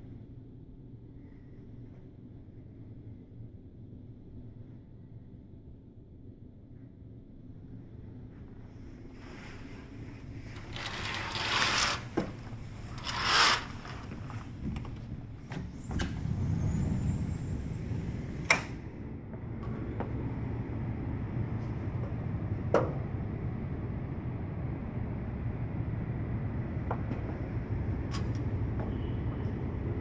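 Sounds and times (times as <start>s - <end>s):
low outdoor rumble: 0.0s - 30.0s
curtain swishing: 9.2s - 14.6s
sliding glass door squealing: 10.5s - 14.5s, 15.8s - 18.5s.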